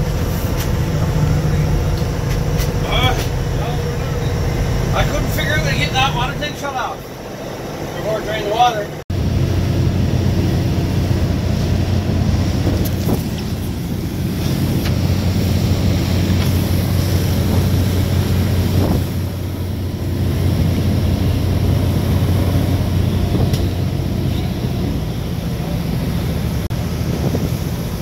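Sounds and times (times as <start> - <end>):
boat diesel engine droning: 0.0 - 28.0
water rushing past hull: 0.0 - 28.0
wind buffeting microphone: 9.1 - 28.0.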